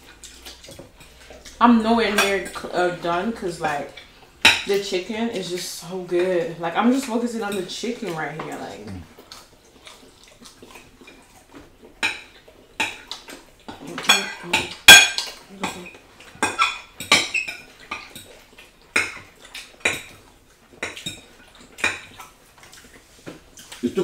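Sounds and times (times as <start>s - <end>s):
forks clinking on plates: 13.9s - 18.3s.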